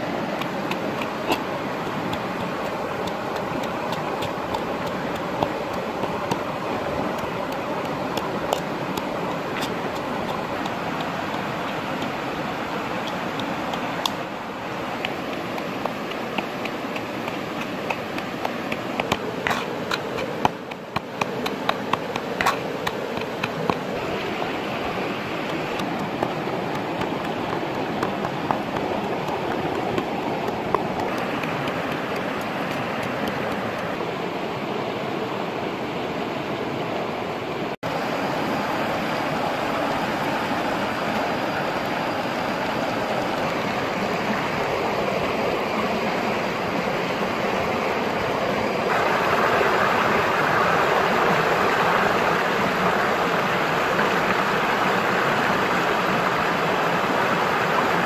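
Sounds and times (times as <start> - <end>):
stream rushing over rock: 0.0 - 58.0
sharp clicks and taps: 13.0 - 14.2, 15.0 - 23.9, 25.4 - 33.9.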